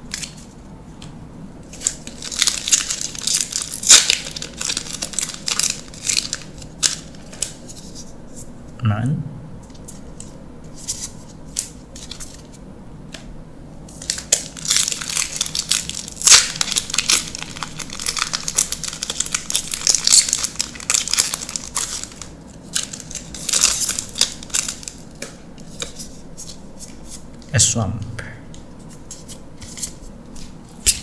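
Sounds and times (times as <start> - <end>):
foil wrapper crinkling and tearing: 1.6 - 8.0, 13.9 - 27.0.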